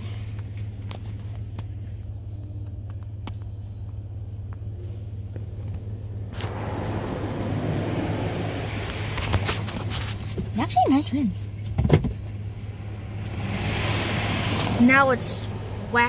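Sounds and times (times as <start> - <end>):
water spray hissing on vehicle: 6.4 - 10.2.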